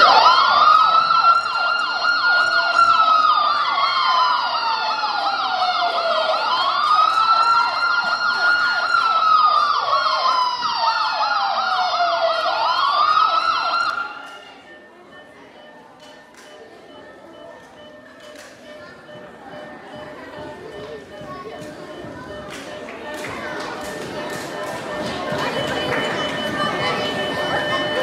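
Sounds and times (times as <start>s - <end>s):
siren wailing and yelping: 0.0s - 14.2s.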